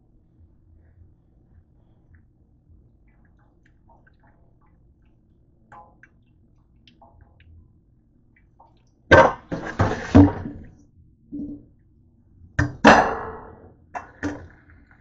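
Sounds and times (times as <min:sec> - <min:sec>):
water dripping and trickling into sink: 0:03.0 - 0:09.1.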